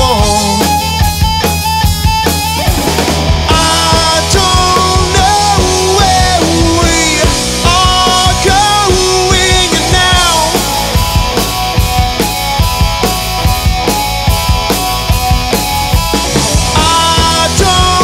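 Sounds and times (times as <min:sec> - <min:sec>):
live rock band playing: 0:00.0 - 0:18.0
man singing long held notes: 0:03.5 - 0:10.6, 0:16.8 - 0:18.0.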